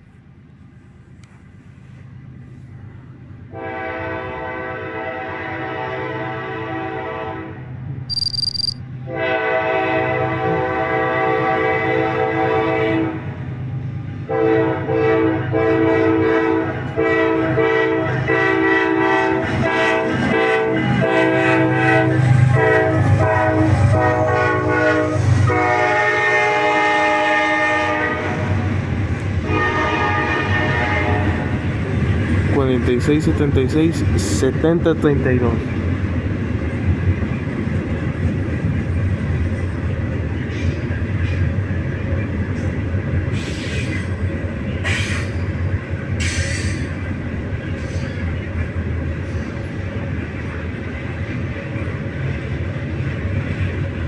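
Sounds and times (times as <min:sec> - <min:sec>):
locomotive air horn blasts: 0:03.5 - 0:07.6, 0:09.1 - 0:13.2, 0:14.3 - 0:28.6, 0:29.4 - 0:31.6
high beep: 0:08.1 - 0:08.8
train wheels clicking over rail joints: 0:36.5 - 0:49.8.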